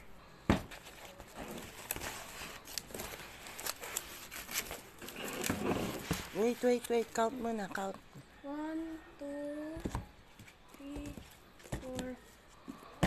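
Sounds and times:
plastic wrapping crinkling: 0.9 - 7.6.

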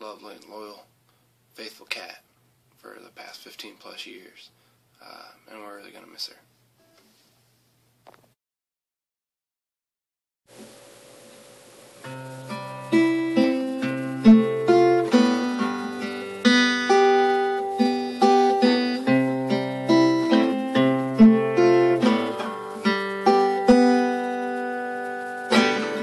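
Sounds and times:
guitar plucking single notes: 12.0 - 26.0.

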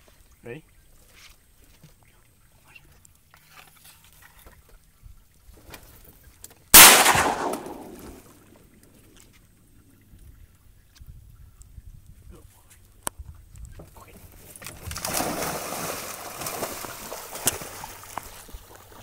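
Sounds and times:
shotgun shot: 6.8 - 8.3.

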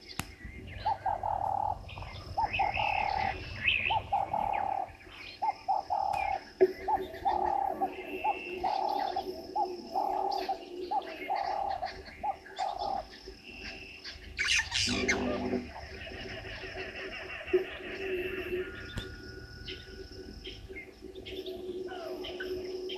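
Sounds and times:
dove cooing: 0.0 - 13.1, 14.5 - 22.9
harsh squawking bird call: 14.4 - 18.7.

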